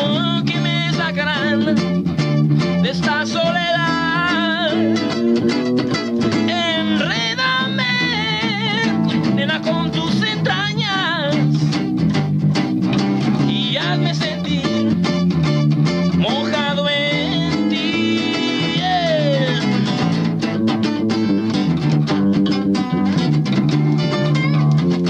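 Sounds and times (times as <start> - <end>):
man singing with vibrato: 0.0 - 2.0, 2.6 - 5.5, 6.2 - 11.8, 13.2 - 15.2, 16.1 - 20.1
second guitar: 0.0 - 25.0
strummed acoustic guitar: 0.0 - 25.0.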